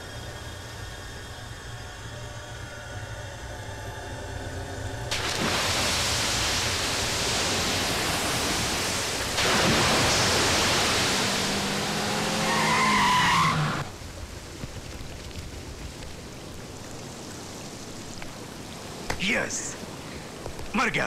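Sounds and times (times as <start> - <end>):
body splashing into river: 5.1 - 12.1
faint steady hiss: 13.8 - 21.0.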